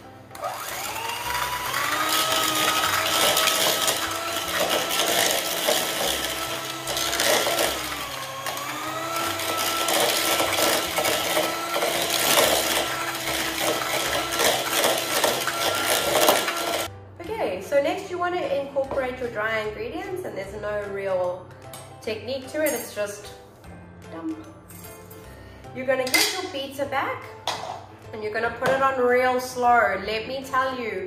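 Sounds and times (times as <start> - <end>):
electric hand mixer whine: 0.3 - 16.9.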